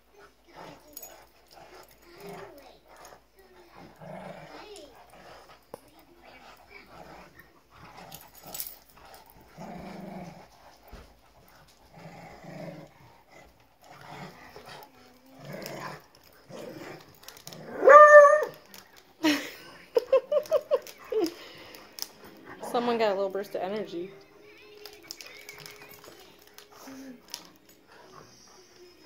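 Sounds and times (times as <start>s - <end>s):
dogs play-growling: 0.0s - 29.0s
dog yipping: 17.7s - 18.6s
dog barking: 17.8s - 18.5s.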